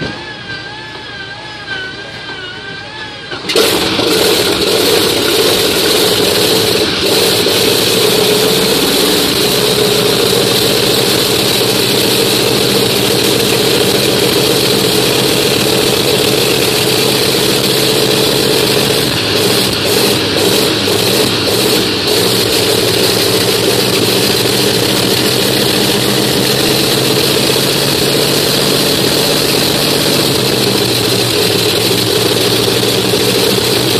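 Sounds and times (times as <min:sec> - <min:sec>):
radial aircraft engine running: 0:00.0 - 0:33.9.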